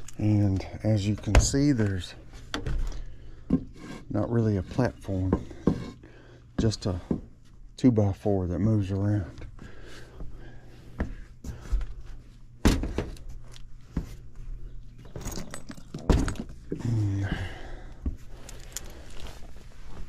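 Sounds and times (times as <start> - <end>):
steady low hum: 0.0 - 20.0
knocks and rattles on wood: 5.2 - 5.9
person grunting: 16.7 - 17.8.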